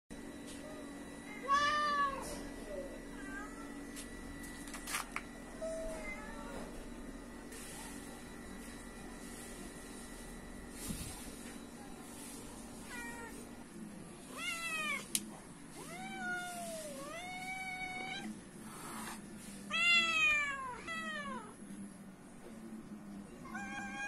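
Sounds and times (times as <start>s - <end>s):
cat meowing: 14.3s - 15.1s, 23.5s - 24.0s.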